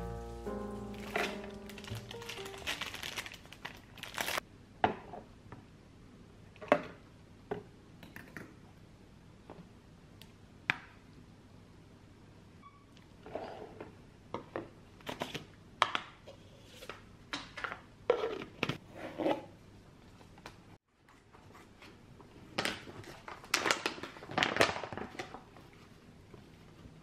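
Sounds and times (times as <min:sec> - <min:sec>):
plastic pouch crinkling: 0:00.0 - 0:04.4.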